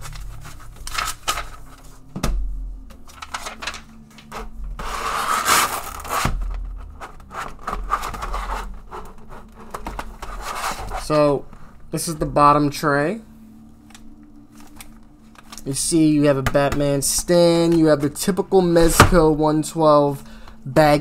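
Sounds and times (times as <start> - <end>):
plastic rustling and scraping: 0.0 - 2.1, 2.9 - 11.8.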